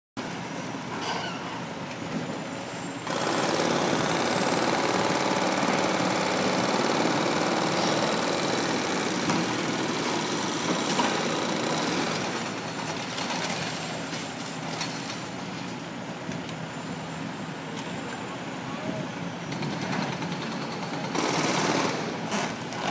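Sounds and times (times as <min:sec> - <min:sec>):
excavator engine: 0:01.7 - 0:22.9
hydraulic breaker hammering: 0:03.1 - 0:12.7.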